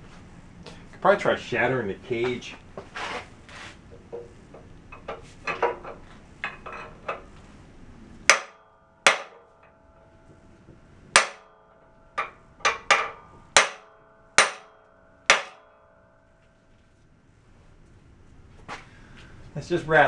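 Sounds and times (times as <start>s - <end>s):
softer knocks and clatter: 4.0s - 7.5s
hammer striking metal: 8.2s - 16.4s.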